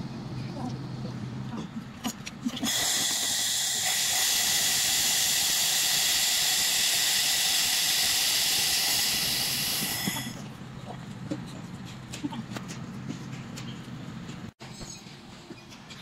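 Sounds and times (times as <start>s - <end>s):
laser welder hissing and whining: 2.6s - 10.4s.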